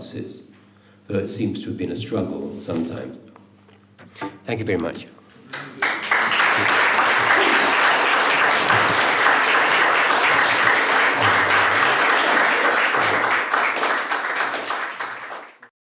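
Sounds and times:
audience applauding: 5.5 - 15.7.

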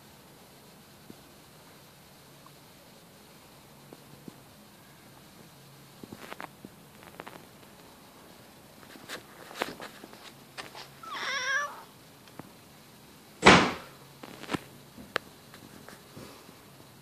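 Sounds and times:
cat trilling: 11.0 - 11.9
loud thump: 13.4 - 13.9.

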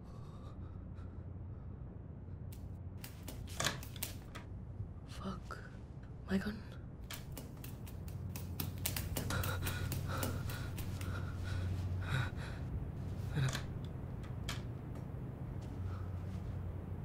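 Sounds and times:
low steady hum: 0.0 - 17.0
sharp breaths: 8.9 - 12.7.

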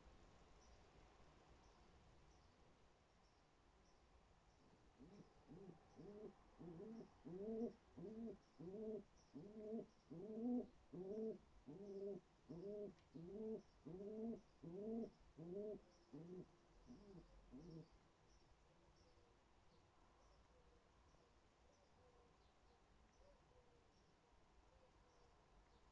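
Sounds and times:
pigeon cooing: 5.0 - 17.9.

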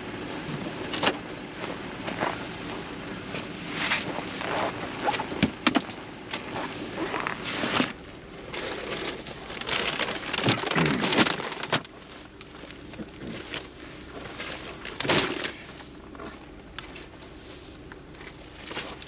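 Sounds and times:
shopping bags rustling: 7.1 - 11.9.

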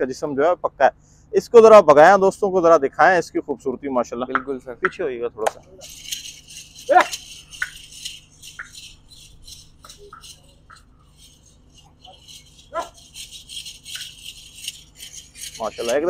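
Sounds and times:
small bells jingling: 5.5 - 16.0.

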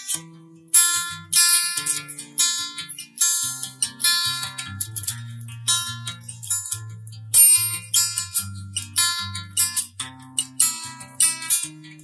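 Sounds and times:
guitar plucked and strummed: 0.0 - 12.0.

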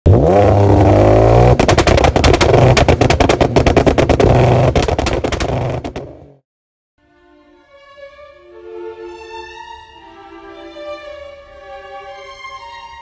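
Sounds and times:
exhaust popping and crackling: 0.1 - 6.4.

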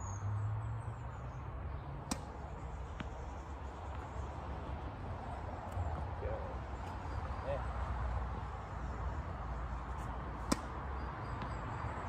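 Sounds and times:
tennis ball bouncing on court: 2.0 - 3.2, 10.0 - 11.8.

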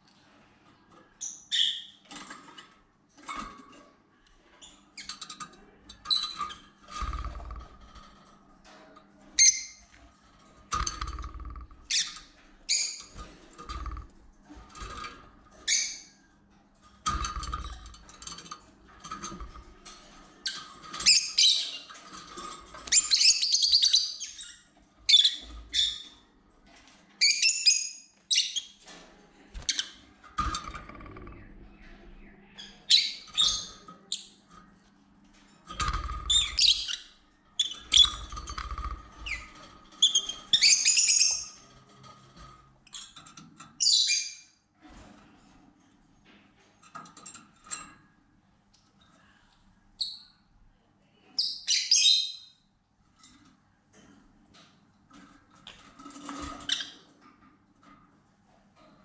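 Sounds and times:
birds chirping and screeching: 1.1 - 2.5, 4.5 - 8.8, 9.4 - 16.2, 17.0 - 26.3, 29.5 - 34.4, 35.7 - 44.5, 51.4 - 52.5, 55.7 - 57.2.

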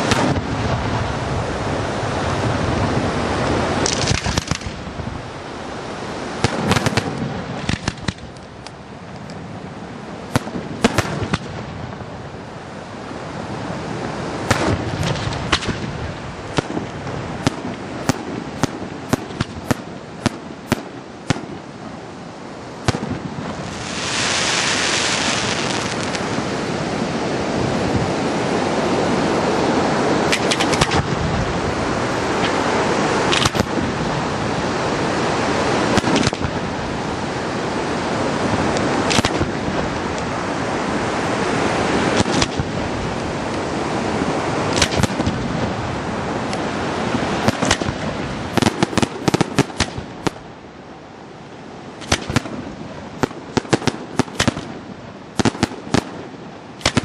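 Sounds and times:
fireworks bangs: 0.0 - 1.0, 3.8 - 4.8, 6.4 - 8.3, 10.3 - 12.0, 14.4 - 21.8, 22.8 - 26.6, 33.2 - 34.1, 35.7 - 36.7, 44.7 - 45.8, 47.1 - 50.4, 52.0 - 54.8, 55.4 - 57.0
rushing background noise: 0.0 - 57.0
loud hiss: 23.0 - 26.4.

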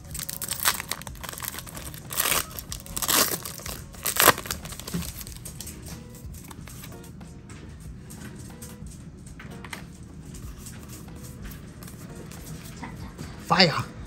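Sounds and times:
foil wrapper crinkling and tearing: 0.0 - 7.0.

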